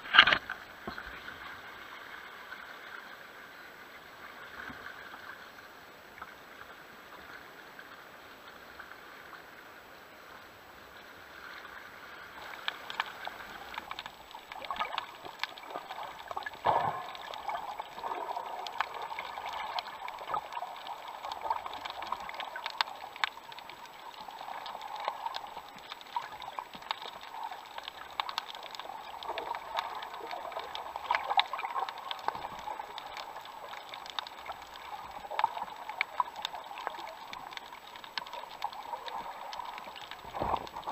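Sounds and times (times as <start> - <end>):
sharp clicks and crackles: 0.0 - 1.2, 12.4 - 40.9
water sloshing and gurgling: 0.0 - 3.4, 11.2 - 40.9
underwater bubbling: 0.0 - 40.9.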